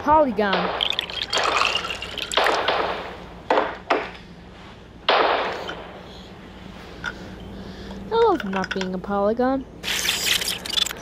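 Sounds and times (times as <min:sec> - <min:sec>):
gunshots: 0:02.3 - 0:03.6, 0:05.1 - 0:05.7.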